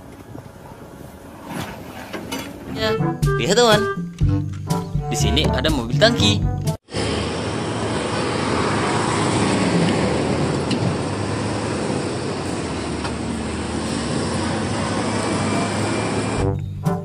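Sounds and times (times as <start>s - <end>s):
tyre noise on road: 6.9s - 16.4s
truck engines passing: 6.9s - 17.0s.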